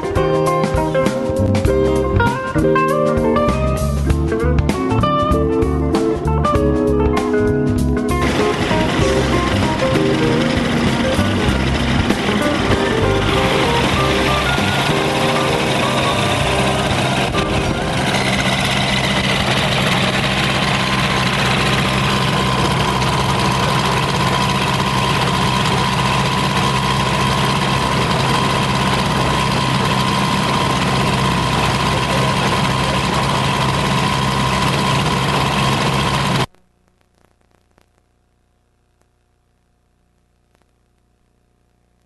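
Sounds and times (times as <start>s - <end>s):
light aircraft engine running: 8.0s - 36.5s.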